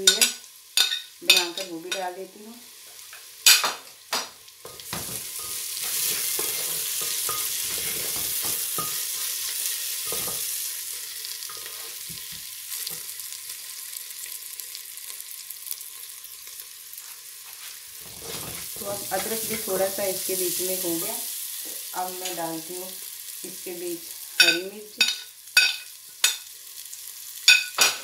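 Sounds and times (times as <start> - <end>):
onions sizzling in hot oil: 0.0 - 28.0
wooden spatula scraping pot: 4.8 - 10.5, 18.0 - 19.7.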